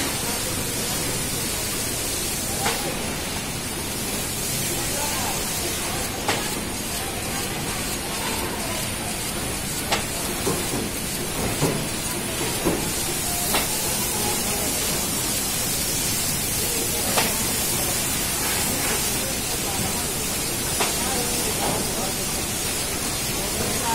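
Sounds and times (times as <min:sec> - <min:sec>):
packing machine hissing: 0:00.0 - 0:23.9.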